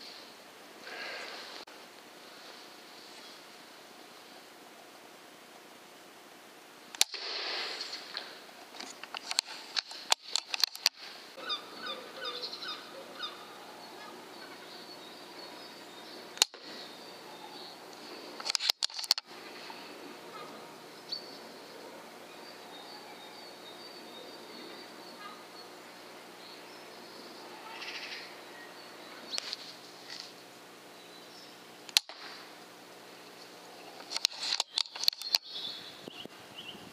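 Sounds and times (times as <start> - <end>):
air rifle shot crack: 7.0 - 7.8
birds singing: 11.3 - 18.4, 19.4 - 29.6, 30.8 - 31.8, 32.4 - 36.9.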